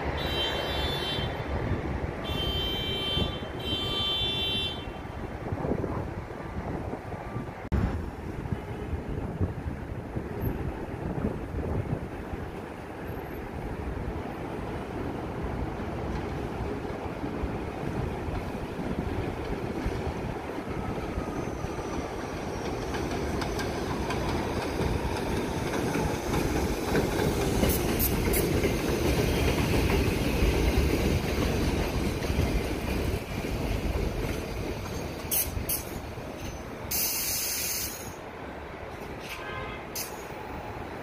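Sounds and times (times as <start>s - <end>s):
subway train rumbling: 0.0s - 41.0s
wheels clacking over rail joints: 15.6s - 37.2s
air hiss: 36.9s - 38.2s.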